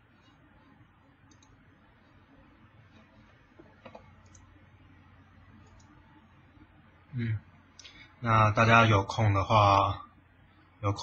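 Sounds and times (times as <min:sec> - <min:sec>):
faint computer mouse clicks: 0:01.3 - 0:01.6.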